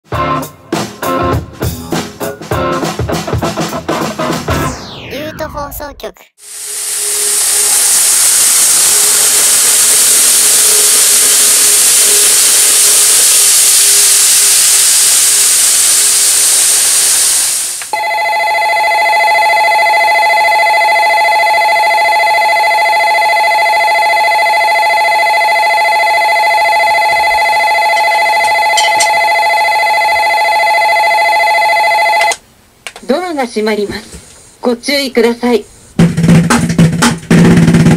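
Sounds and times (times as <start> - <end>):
loud steady hiss: 6.4 - 18.0
station departure bell ringing: 18.0 - 32.4.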